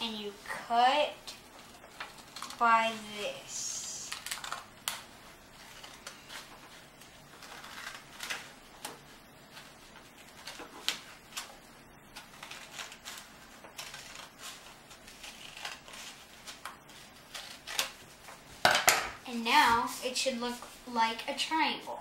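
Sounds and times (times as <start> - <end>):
paper rustling: 4.1 - 18.6
scissors snipping paper: 12.2 - 18.0.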